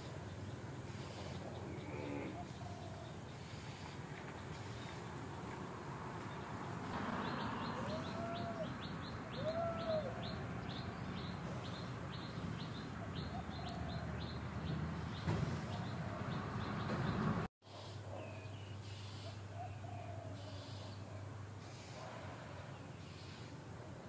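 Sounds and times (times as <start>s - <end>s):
outdoor background noise: 0.0s - 24.0s
bird chirping: 6.3s - 17.5s
rising and falling bird call: 7.0s - 17.3s.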